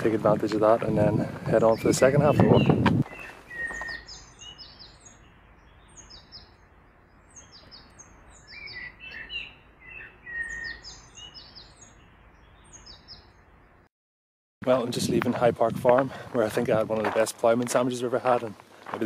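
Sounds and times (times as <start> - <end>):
songbirds chirping and singing: 0.0 - 13.9.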